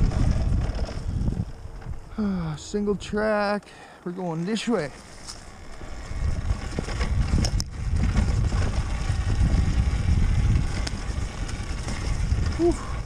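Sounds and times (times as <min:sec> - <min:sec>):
wind buffeting microphone: 0:00.0 - 0:03.3, 0:05.4 - 0:13.0
dirt bike knocking over bumps: 0:05.3 - 0:13.0.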